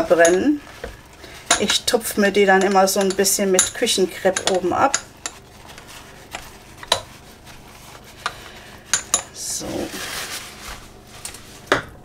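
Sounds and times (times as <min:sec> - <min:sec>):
ceramic ramekins clinking: 0:01.5 - 0:05.4, 0:08.9 - 0:09.3
kitchen paper rustling: 0:05.3 - 0:12.0.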